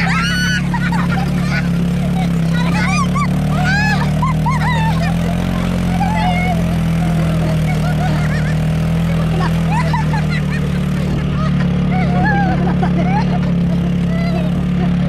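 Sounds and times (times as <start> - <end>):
people laughing and shrieking: 0.0 - 15.0
quad bike engine running: 0.0 - 15.0.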